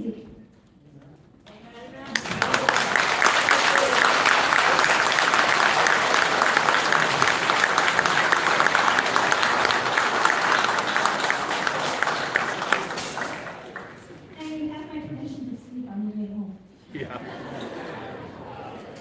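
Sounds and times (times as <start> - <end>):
audience applauding: 1.5 - 14.3.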